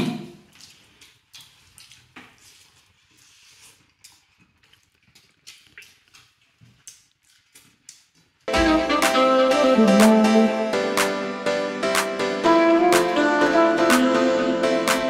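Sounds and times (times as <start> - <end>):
chewing smacks and clicks: 0.4 - 8.5.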